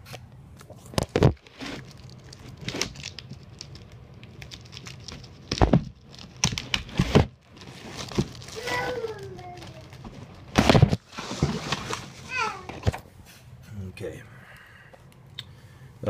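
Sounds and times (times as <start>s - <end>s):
plastic wrap crinkling and tearing: 0.9s - 12.9s.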